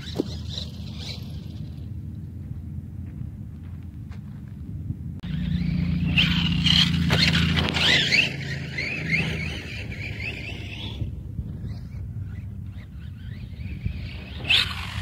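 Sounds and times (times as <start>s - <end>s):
low steady rumble: 0.0s - 15.0s
electric motor whine: 5.2s - 15.0s.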